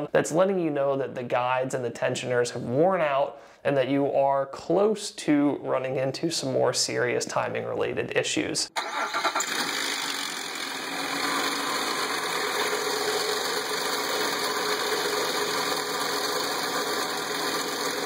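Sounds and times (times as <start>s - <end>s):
car engine idling: 9.7s - 18.0s.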